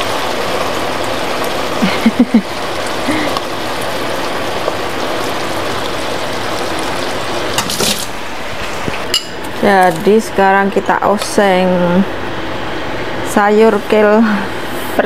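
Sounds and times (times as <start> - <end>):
food sizzling in a frying pan: 0.0 - 10.4.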